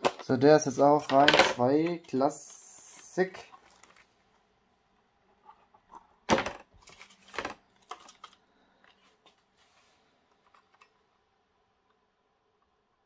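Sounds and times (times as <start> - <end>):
plastic packaging clattering: 6.3 - 8.4.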